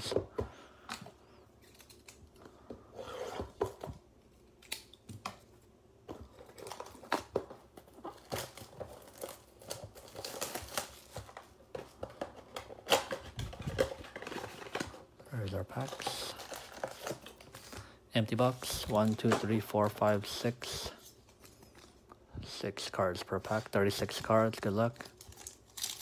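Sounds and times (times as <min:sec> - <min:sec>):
plastic wrap crinkling and tearing: 0:06.4 - 0:11.6, 0:24.4 - 0:26.0.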